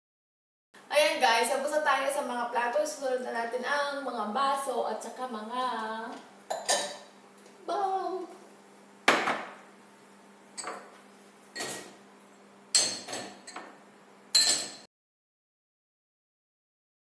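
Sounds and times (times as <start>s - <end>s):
glasses clinking in dishwasher rack: 6.5s - 7.0s, 10.6s - 10.9s, 11.6s - 12.0s, 12.8s - 13.7s, 14.4s - 14.9s.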